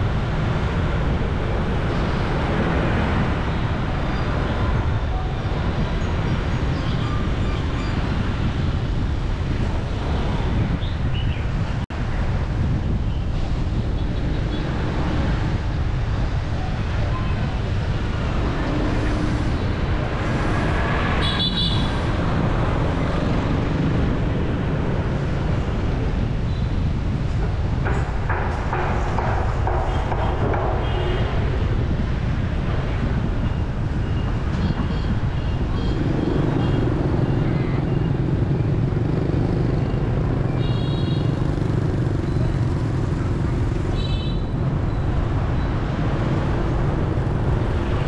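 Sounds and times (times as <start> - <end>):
traffic and road rumble: 0.0 - 48.0.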